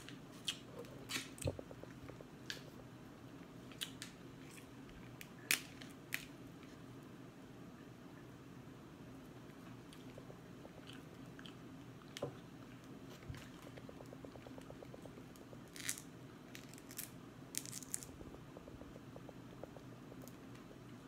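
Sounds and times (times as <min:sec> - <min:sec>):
chewing mouth sounds: 0:09.9 - 0:16.0.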